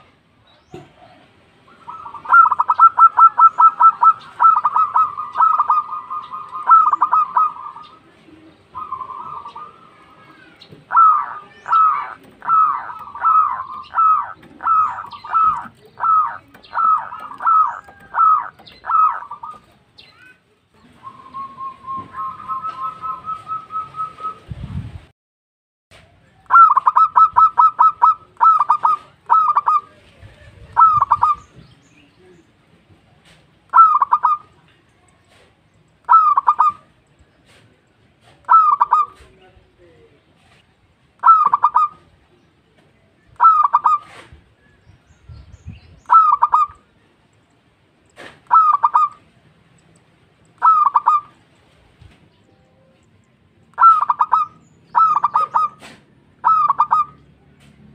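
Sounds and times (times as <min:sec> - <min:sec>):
dove cooing: 0:00.8 - 0:19.8, 0:21.0 - 0:24.4, 0:26.5 - 0:31.6, 0:33.7 - 0:34.5, 0:36.1 - 0:36.9, 0:38.2 - 0:39.3, 0:41.2 - 0:42.1, 0:43.4 - 0:44.4, 0:46.0 - 0:46.8, 0:48.2 - 0:49.3, 0:50.6 - 0:51.4, 0:53.8 - 0:57.3.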